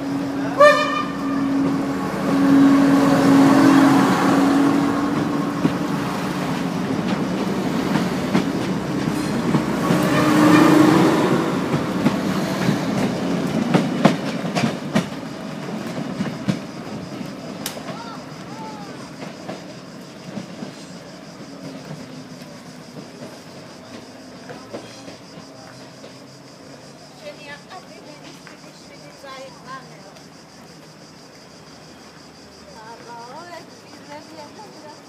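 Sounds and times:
diesel train droning hum: 0.0 - 27.1.

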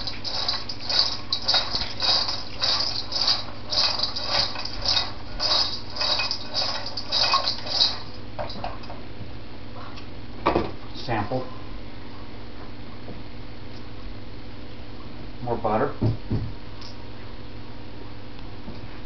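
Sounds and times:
popcorn shaken in metal bowl: 0.0 - 8.8.

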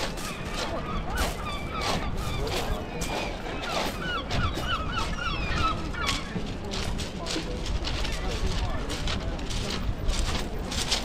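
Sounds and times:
gull calling: 0.0 - 6.4
steady background noise: 0.0 - 11.0.

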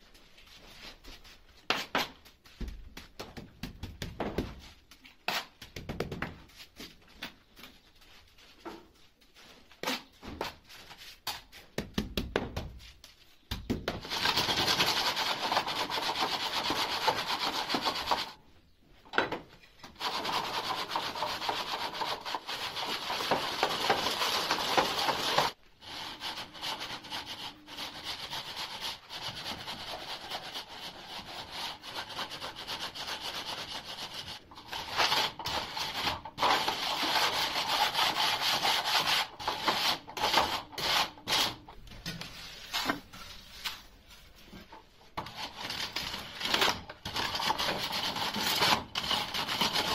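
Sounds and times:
metal straightedge scraping mortar: 34.6 - 41.7, 45.2 - 49.9.

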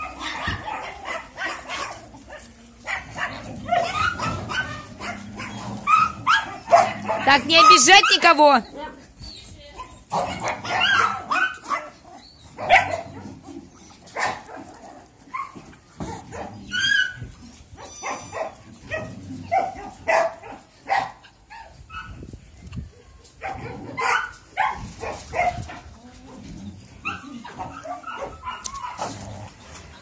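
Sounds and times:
puppies whining: 0.0 - 14.3, 15.0 - 20.0, 25.3 - 30.0
puppies yapping and barking: 0.0 - 30.0.

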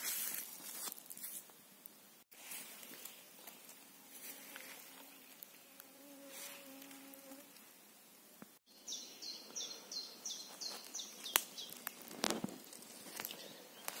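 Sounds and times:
insect buzzing: 3.6 - 7.8
songbird singing: 8.7 - 12.0.

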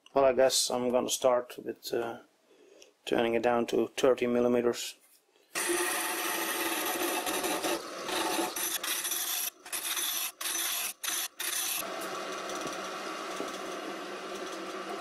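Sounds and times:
lathe tool cutting wood: 5.6 - 15.0.

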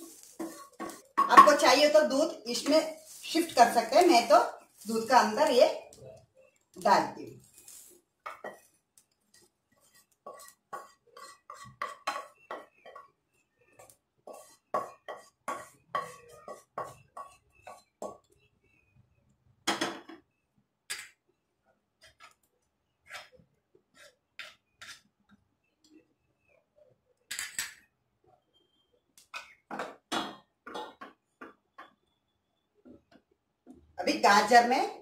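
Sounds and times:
spoon scraping and knocking a pan: 0.0 - 4.1, 8.2 - 13.2, 13.8 - 18.3, 22.0 - 25.2, 29.4 - 32.0.

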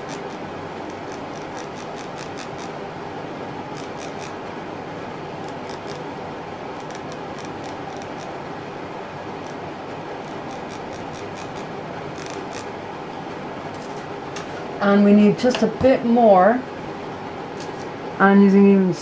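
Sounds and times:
rasping on ridged wire handle: 0.0 - 2.8, 3.8 - 4.4, 5.5 - 6.0, 6.8 - 8.3, 10.2 - 12.7.

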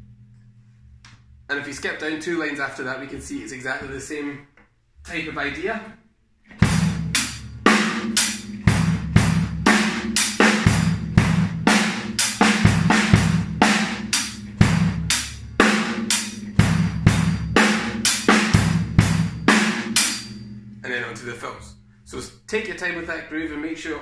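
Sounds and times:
bass drum beats: 6.5 - 21.9.

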